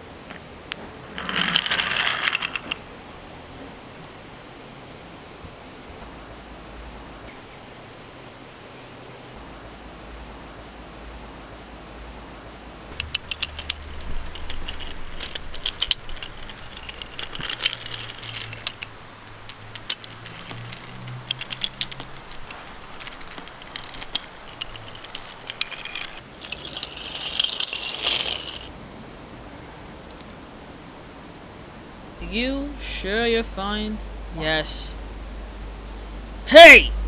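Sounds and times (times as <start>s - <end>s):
toy train wheels rattling on track: 1.1s - 2.8s, 13.0s - 28.7s.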